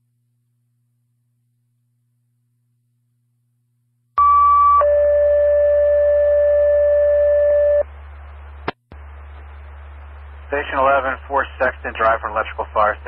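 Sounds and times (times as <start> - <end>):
radio hiss and hum: 7.8 - 13.0
two-tone radio page: 9.0 - 13.0.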